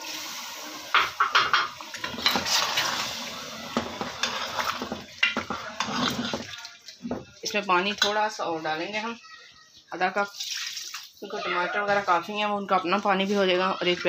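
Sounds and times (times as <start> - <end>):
ladle scraping metal pot: 1.0 - 6.7.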